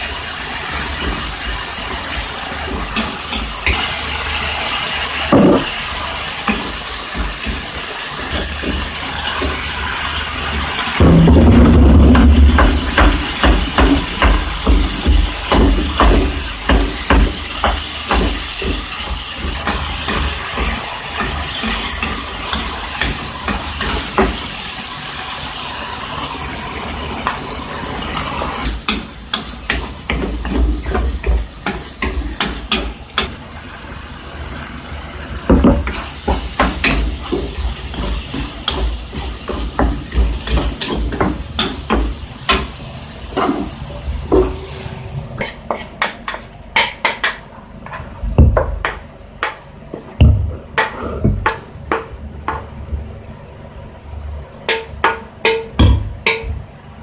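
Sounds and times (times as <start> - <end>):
food sizzling in frying pan: 0.0 - 57.0.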